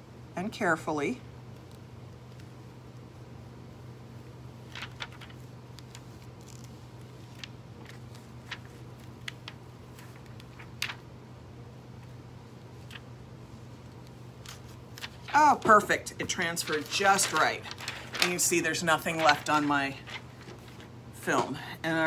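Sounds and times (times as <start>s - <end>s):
steady low hum: 0.0s - 22.0s
plastic film crackling as peeled: 4.7s - 11.0s, 16.5s - 20.9s.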